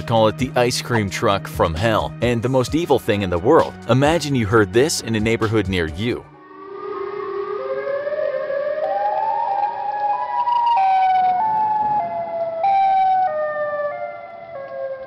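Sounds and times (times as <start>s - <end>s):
wavering warning siren: 6.3s - 15.0s.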